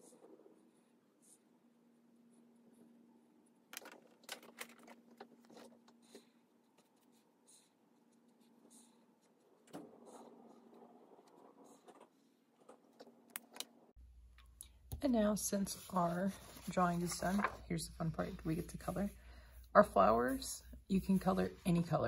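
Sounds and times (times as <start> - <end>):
marker scratching on paper: 5.5 - 13.1, 18.0 - 19.2
low steady hum: 13.3 - 22.0.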